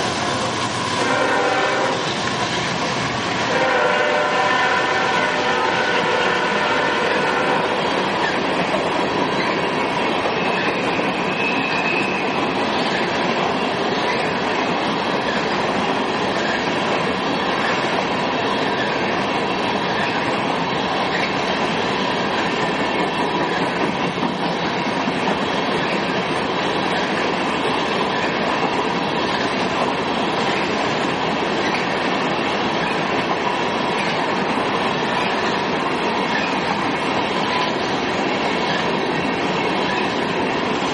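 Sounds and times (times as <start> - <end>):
train wheels clattering over rail joints: 7.7 - 40.9
faint high wheel squeal: 10.4 - 12.5.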